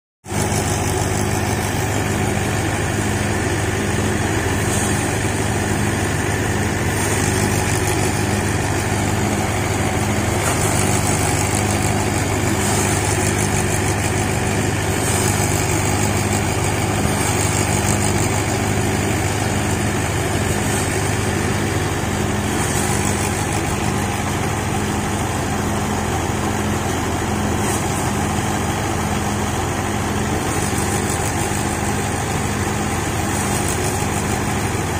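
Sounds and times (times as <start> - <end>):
thresher engine drone: 0.2 - 34.9.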